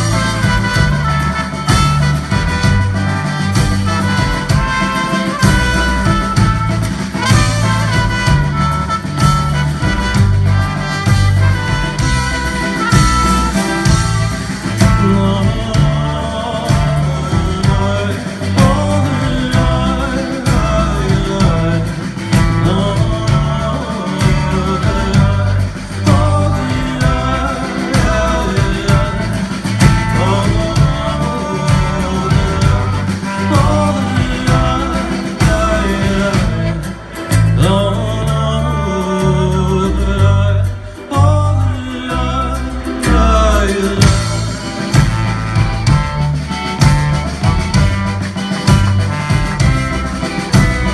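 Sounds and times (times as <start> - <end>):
live band playing: 0.0 - 50.9
man singing: 0.0 - 50.9
pulsing bass line: 0.0 - 50.9
trumpet and trombone: 0.0 - 50.9.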